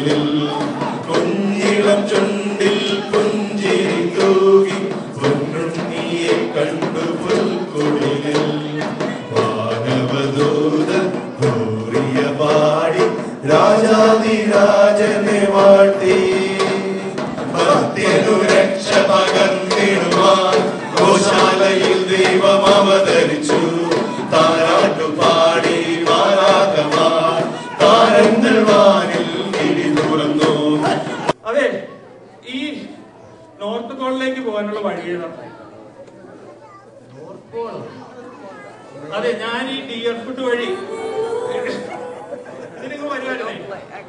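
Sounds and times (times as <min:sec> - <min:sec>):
frame drum beating: 0:00.0 - 0:31.4
men singing together: 0:00.0 - 0:31.4, 0:40.6 - 0:42.9.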